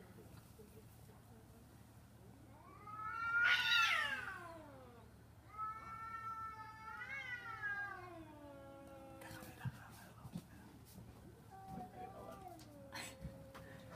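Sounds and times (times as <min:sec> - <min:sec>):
cats yowling: 0:02.6 - 0:09.3.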